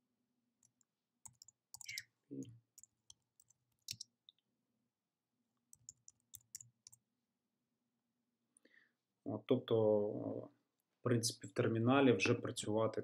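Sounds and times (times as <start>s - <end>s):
keyboard keys typing: 0.6s - 2.0s, 2.8s - 4.0s, 5.7s - 7.0s.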